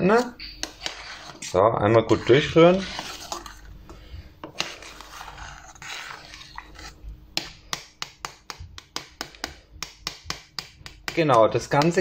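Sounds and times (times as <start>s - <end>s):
spoon scraping a metal pot: 0.0s - 7.1s.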